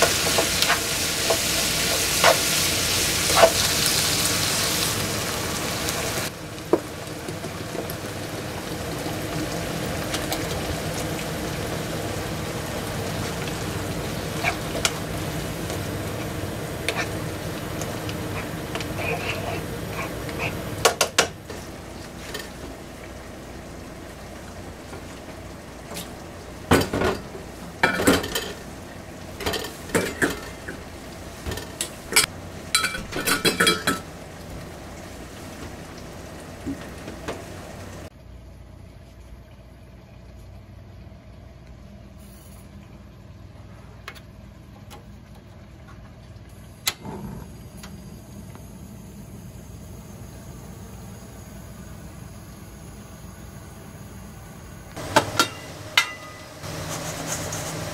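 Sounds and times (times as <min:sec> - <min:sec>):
gas stove burner hissing: 0:00.0 - 0:38.1, 0:46.5 - 0:57.9
metal bowls and strainer clattering: 0:26.7 - 0:28.7, 0:29.4 - 0:30.8, 0:31.4 - 0:34.1, 0:55.0 - 0:57.9.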